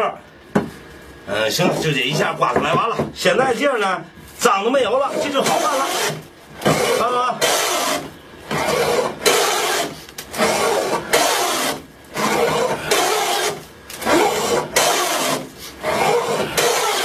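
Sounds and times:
hand plane shaving wood: 0:05.1 - 0:17.0.

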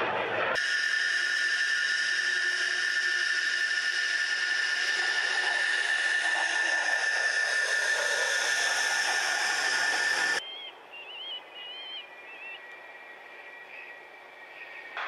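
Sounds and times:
jet engines roaring past: 0:00.0 - 0:10.4
faint bird chirps: 0:10.4 - 0:15.0.

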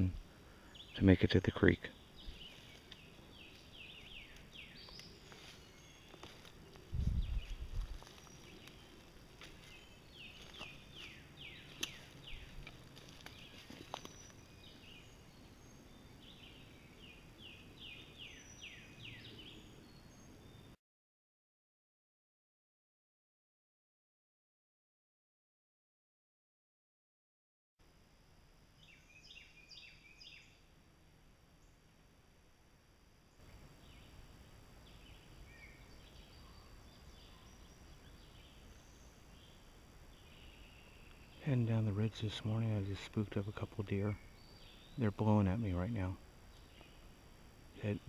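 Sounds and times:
faint bird chirps: 0:28.7 - 0:30.7, 0:33.3 - 0:48.0.

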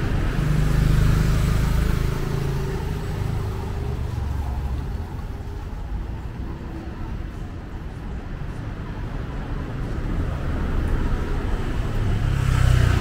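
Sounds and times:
vehicle engine passing by: 0:00.0 - 0:05.0, 0:11.4 - 0:13.0.

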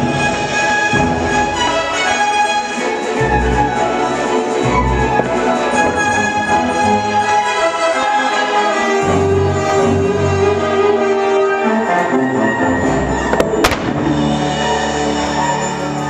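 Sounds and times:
orchestral show music: 0:00.0 - 0:16.0
firework bangs: 0:13.3 - 0:14.8.

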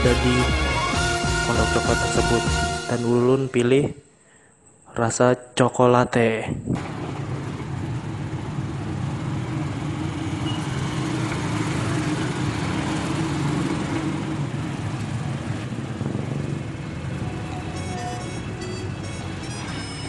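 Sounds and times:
cars passing: 0:06.8 - 0:20.0
motorbikes passing: 0:06.8 - 0:20.0.

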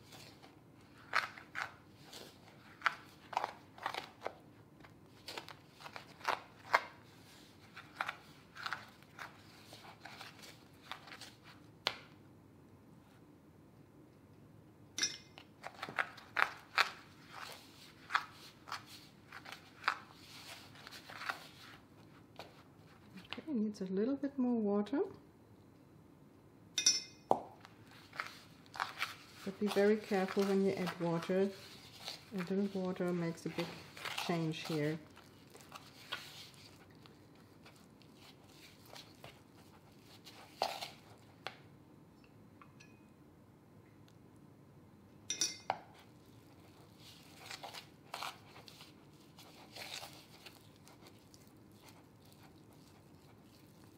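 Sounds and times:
spoon scraping icing in bowl: 0:27.9 - 0:37.0, 0:37.6 - 0:41.3, 0:46.0 - 0:53.9.

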